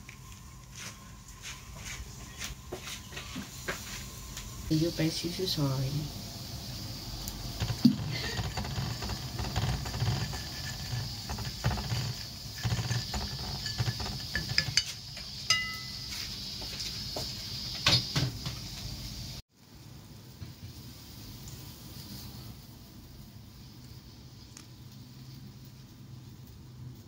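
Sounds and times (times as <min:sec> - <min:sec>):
chopsticks tapping and scraping plate: 0:07.6 - 0:16.2.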